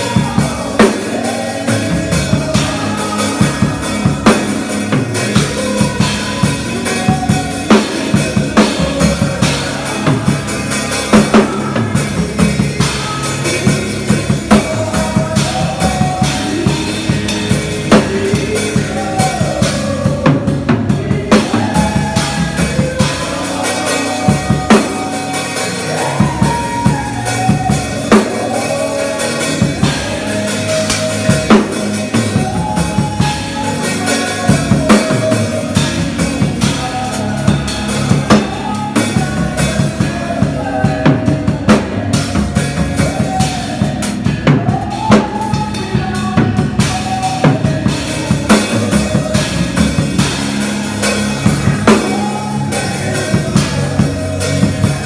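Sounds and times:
drum kit groove: 0.0 - 55.0
worship music: 0.0 - 55.0.

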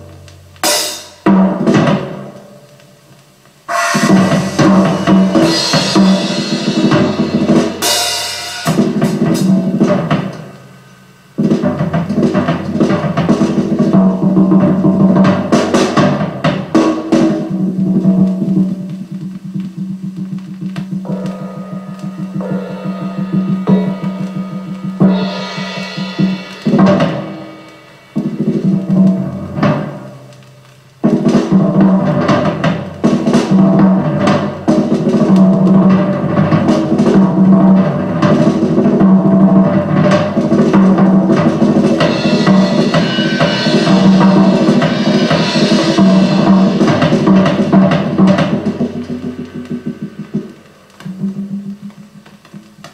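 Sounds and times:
sharp drum strikes: 0.0 - 52.9
higher sustained notes: 3.7 - 8.8
soft quick drum beat: 3.7 - 10.6, 11.4 - 52.9.

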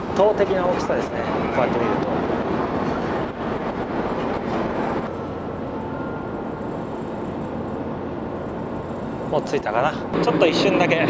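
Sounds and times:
faint steady whine: 2.4 - 11.0.

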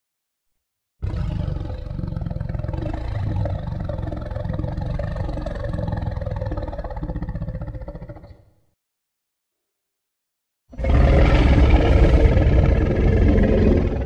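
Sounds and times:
monster growl with rattling pulse: 1.0 - 8.4, 10.8 - 14.0.

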